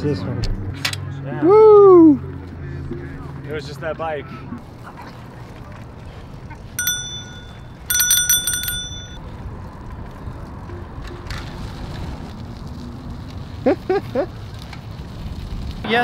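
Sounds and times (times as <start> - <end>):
bicycle bell ringing: 6.8 - 9.3.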